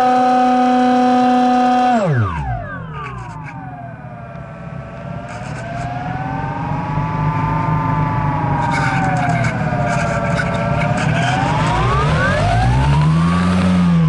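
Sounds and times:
electric motor whine: 0.0 - 14.0.

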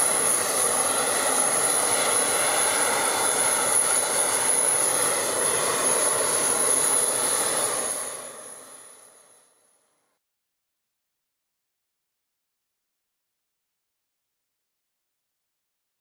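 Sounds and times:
jet engine running: 0.0 - 9.6.

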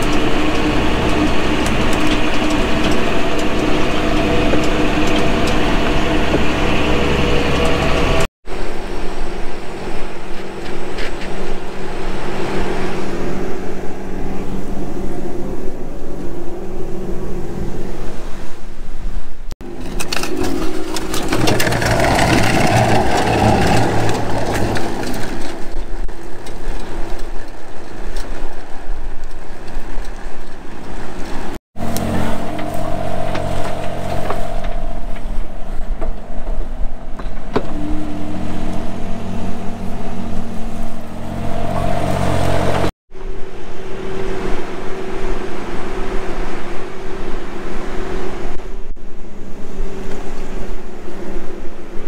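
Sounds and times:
heavy machinery engines running: 0.0 - 8.3, 19.6 - 25.8, 31.8 - 42.9.

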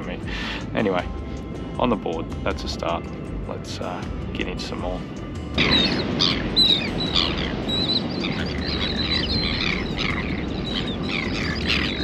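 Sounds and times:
steady low rush: 5.0 - 12.0
flock of birds calling: 5.6 - 12.0.

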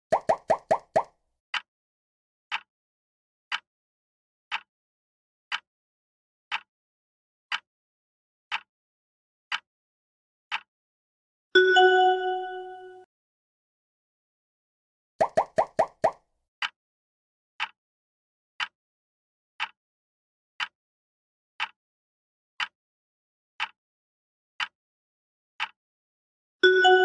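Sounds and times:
countdown timer ticks: 0.1 - 1.1, 11.6 - 13.1, 15.2 - 16.2, 26.6 - 27.0
bright ringing chime: 11.6 - 13.0.

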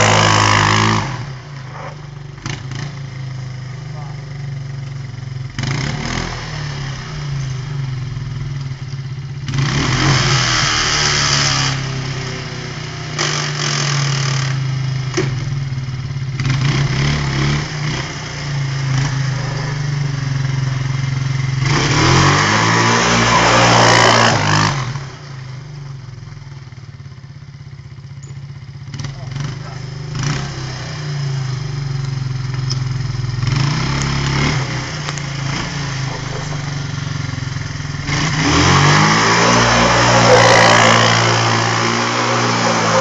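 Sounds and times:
quad engine revving: 0.0 - 27.2, 28.6 - 43.0
engine idling: 25.6 - 30.1, 35.1 - 38.2
spinning tyres hissing: 34.6 - 43.0.

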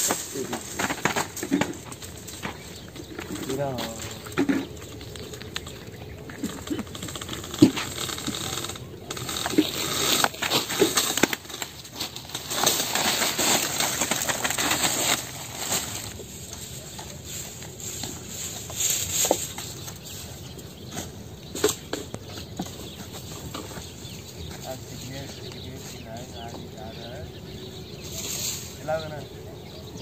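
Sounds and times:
rustling of date bunch: 0.0 - 21.6.

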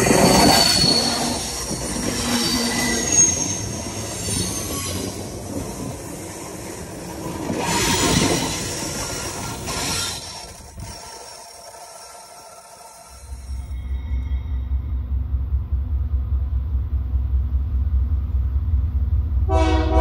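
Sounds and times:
high wheel squeals: 0.0 - 5.5, 7.6 - 15.0
train wheels rumbling and clattering: 0.0 - 20.0.

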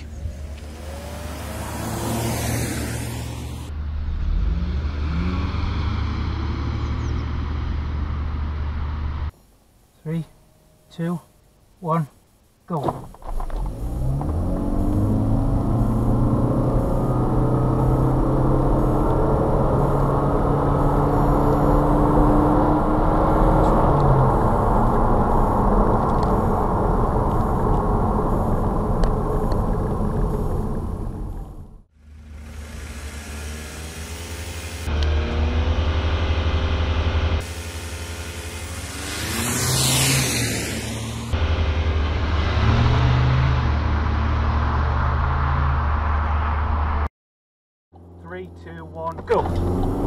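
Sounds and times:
low engine tone: 0.0 - 9.4, 12.8 - 47.0, 47.9 - 50.0
car road and engine noise: 0.0 - 47.1, 47.9 - 50.0.

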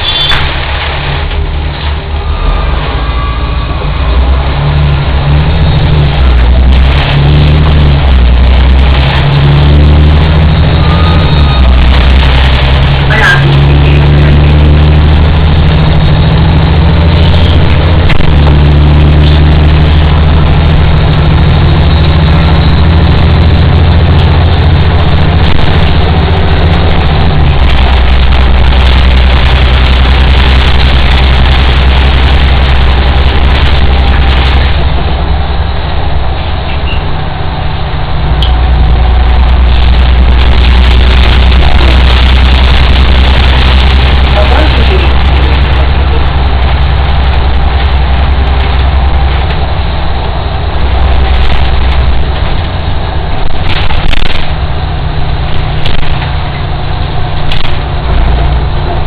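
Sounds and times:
short high squeak: 0.0 - 0.6, 36.8 - 37.1
bus engine running: 0.0 - 59.0.

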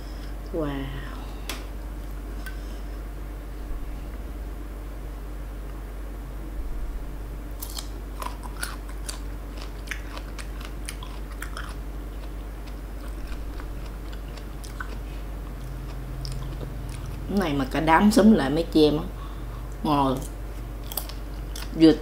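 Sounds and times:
crunching and chewing mango: 7.5 - 17.8, 19.6 - 22.0.

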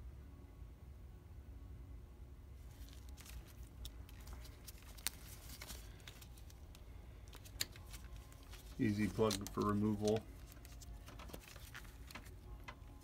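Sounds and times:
gloved hands rustling: 2.6 - 13.0.

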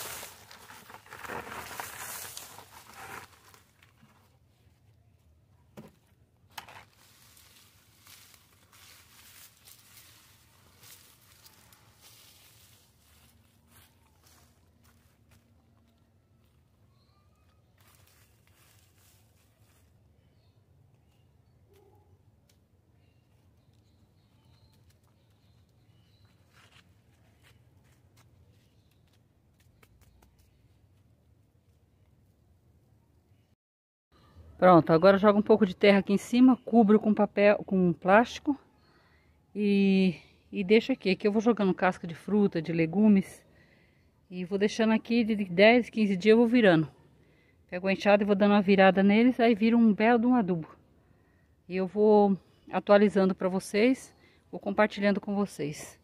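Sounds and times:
soil and leaves pouring: 0.0 - 3.9, 6.6 - 14.5, 17.8 - 19.9
rustling of dry plant debris: 0.0 - 4.4, 6.5 - 15.5, 16.4 - 20.1.

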